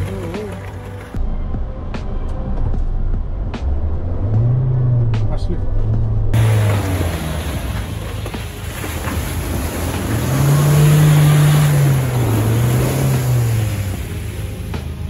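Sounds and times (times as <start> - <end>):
car engine revving: 1.9 - 15.0.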